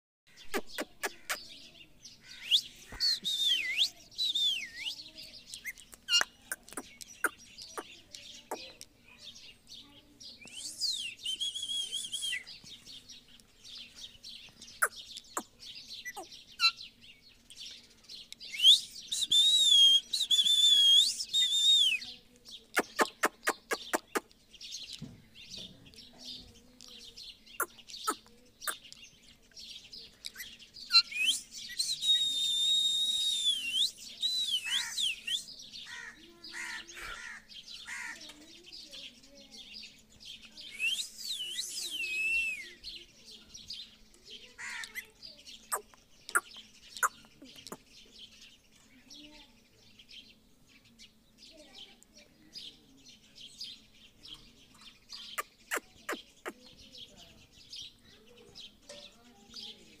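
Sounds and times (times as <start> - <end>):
parakeet chirps and clicks: 0.4 - 1.5, 5.5 - 8.9, 22.4 - 24.4, 44.8 - 47.9, 55.2 - 56.6
parakeet shrill call: 34.7 - 35.3.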